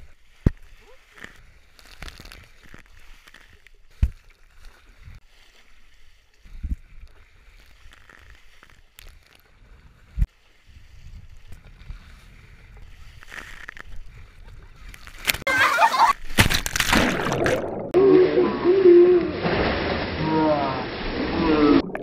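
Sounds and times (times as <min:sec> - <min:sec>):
water rushing on slide: 0:16.9 - 0:22.0.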